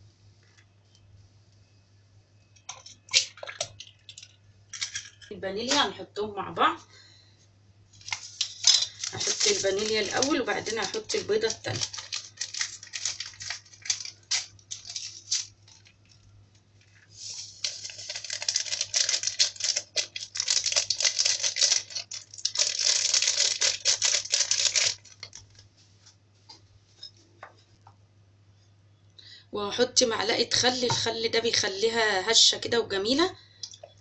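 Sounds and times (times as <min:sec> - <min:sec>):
paper sachet tearing and crinkling: 0:08.0 - 0:16.1, 0:17.2 - 0:25.6.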